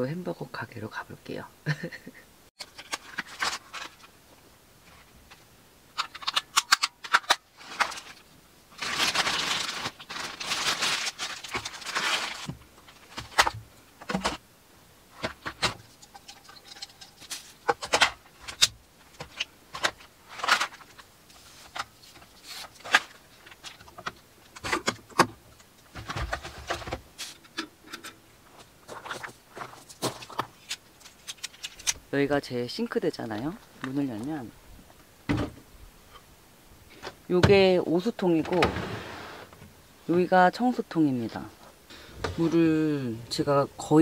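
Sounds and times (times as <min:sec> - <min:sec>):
plastic and glass items clattering: 0:02.6 - 0:04.1, 0:06.0 - 0:14.4, 0:15.2 - 0:25.3, 0:25.9 - 0:28.2, 0:28.9 - 0:31.9.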